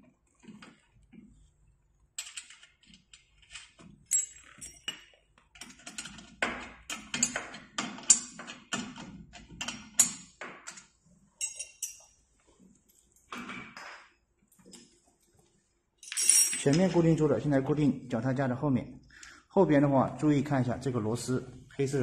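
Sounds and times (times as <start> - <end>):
metal bolts clicking and clinking: 2.2 - 12.1, 16.0 - 17.1.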